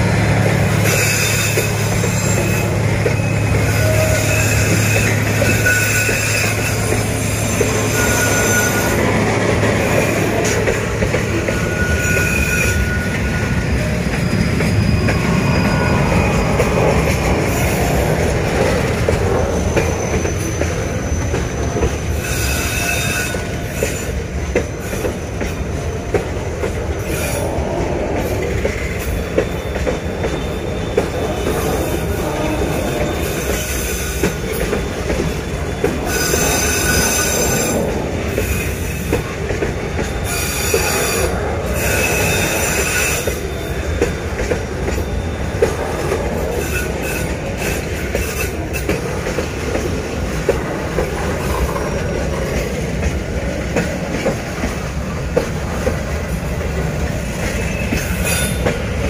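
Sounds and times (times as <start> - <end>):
train wheels rumbling on rails: 0.0 - 59.0
rail-joint clicks: 0.3 - 59.0
high-pitched wheel squeal: 0.8 - 9.2, 11.4 - 18.0, 19.4 - 24.2, 28.8 - 34.5, 35.2 - 39.3.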